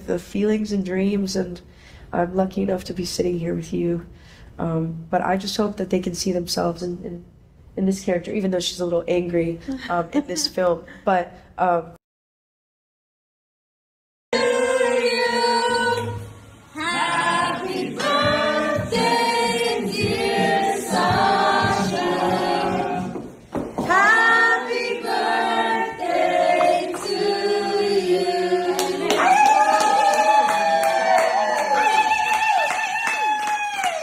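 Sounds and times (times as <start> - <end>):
voices singing together: 14.3 - 29.4.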